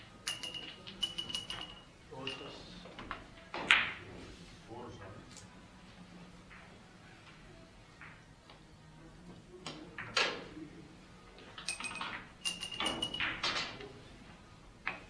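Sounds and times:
billiard balls clicking: 0.0 - 4.0, 11.4 - 13.9.

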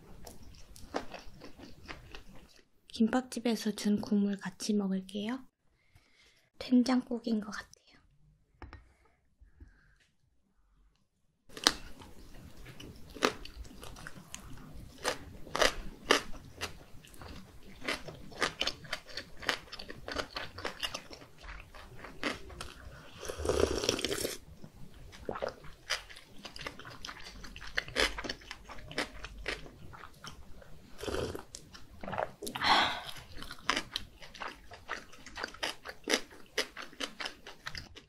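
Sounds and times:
chewing with wet mouth clicks: 11.6 - 22.9, 25.1 - 38.0
slurping sip of broth: 23.2 - 24.4, 32.4 - 33.4.

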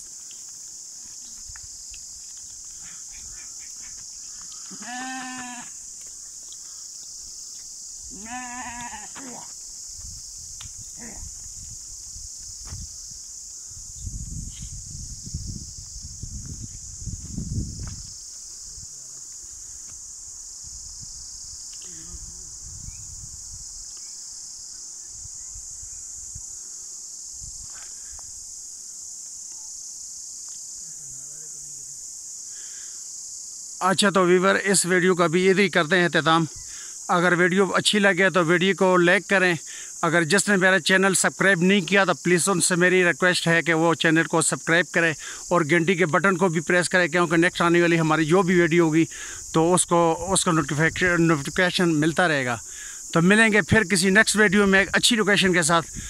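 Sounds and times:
high-pitched hiss: 0.0 - 56.0
insects shrilling: 0.0 - 56.0
sheep bleat: 4.7 - 5.7, 8.1 - 9.2.

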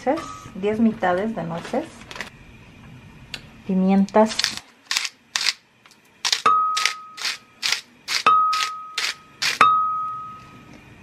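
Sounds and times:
pepper shaker rasping: 6.2 - 9.6.

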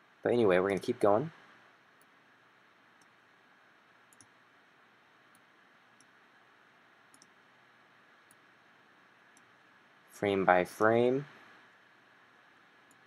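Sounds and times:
computer mouse clicks: 3.0 - 3.2, 4.1 - 4.4, 5.3 - 6.2, 7.1 - 7.4, 9.3 - 9.5.

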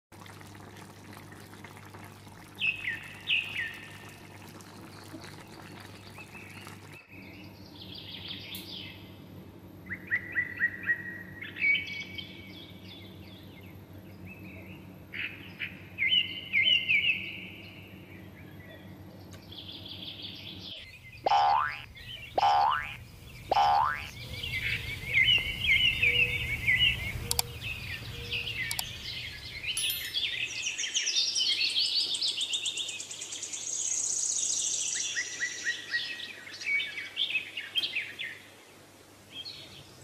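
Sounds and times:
birds chirping: 19.3 - 33.2
steady low hum: 20.8 - 30.6.

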